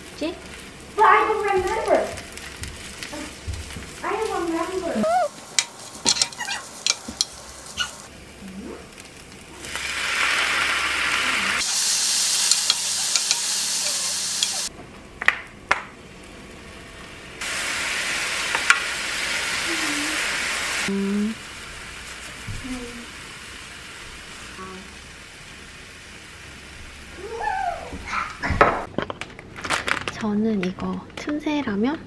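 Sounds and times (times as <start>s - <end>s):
food sizzling in a frying pan: 0.0s - 14.7s, 16.0s - 28.9s
spatula scraping a pan: 6.0s - 8.0s.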